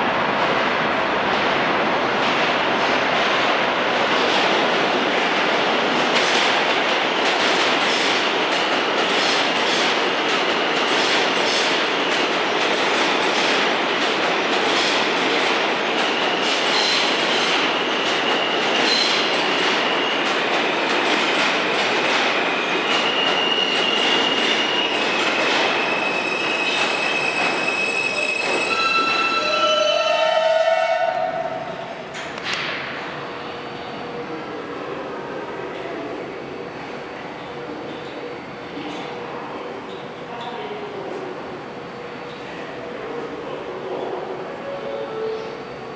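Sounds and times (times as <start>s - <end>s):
train brakes squealing: 22.5s - 30.4s.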